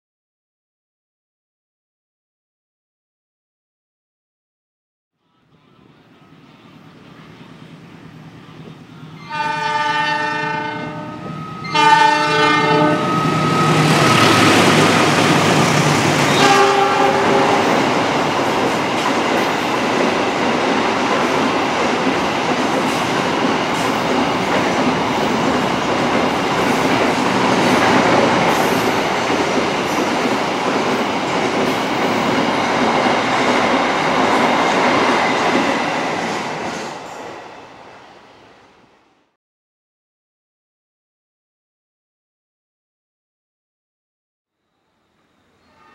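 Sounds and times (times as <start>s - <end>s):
locomotive air horn blasts: 9.2s - 14.5s, 16.2s - 17.8s
train wheels rumbling and clattering: 13.3s - 37.3s.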